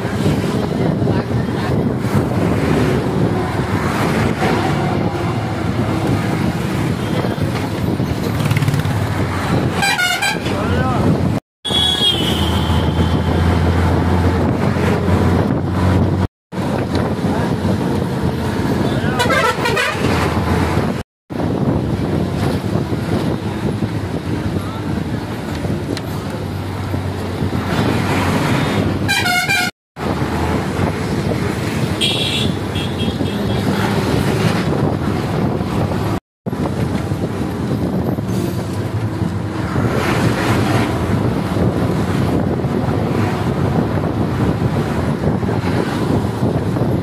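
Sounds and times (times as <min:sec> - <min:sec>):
moving bus engine and road noise: 0:00.0 - 0:47.0
pulsing multi-tone horn: 0:09.8 - 0:10.5, 0:19.2 - 0:20.1, 0:29.1 - 0:29.7.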